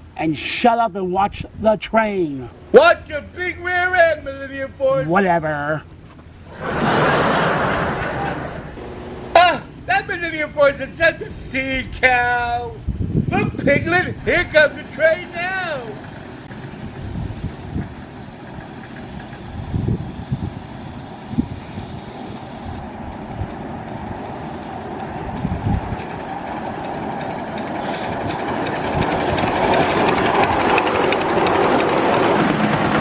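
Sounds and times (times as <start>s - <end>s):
miniature train running: 2.8s - 4.9s, 9.3s - 12.6s, 13.3s - 33.0s.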